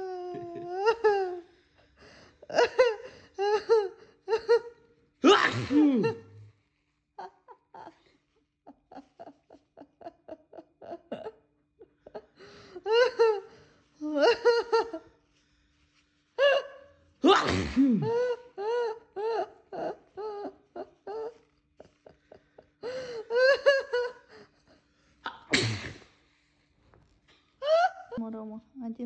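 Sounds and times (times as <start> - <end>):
man laughing: 0.0 - 1.4.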